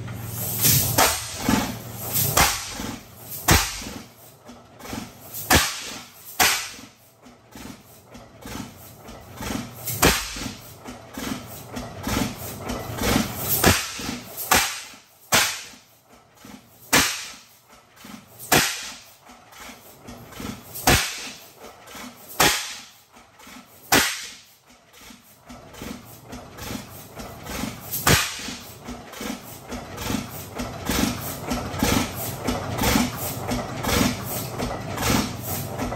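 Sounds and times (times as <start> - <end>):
engine clatter: 0.0 - 35.9
tractor engine exhaust bangs: 0.0 - 35.9.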